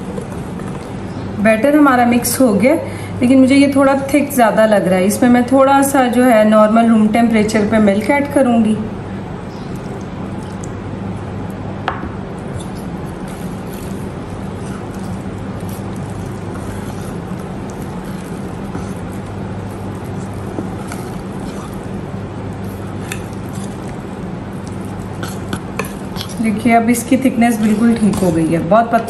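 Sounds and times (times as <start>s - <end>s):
steady low hum: 0.0s - 29.0s
whisk squelching batter: 12.6s - 26.6s.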